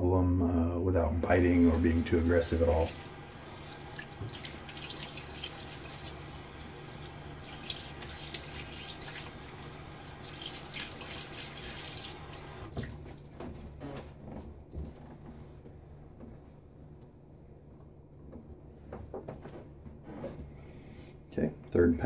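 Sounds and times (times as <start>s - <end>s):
water running from sink tap: 1.2s - 13.3s
water splashing face: 1.4s - 13.4s.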